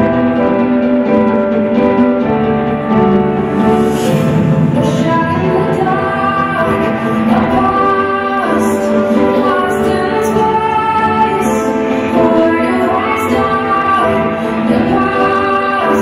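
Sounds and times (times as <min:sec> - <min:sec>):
musical accompaniment: 0:00.0 - 0:16.0
woman singing long notes: 0:04.8 - 0:16.0.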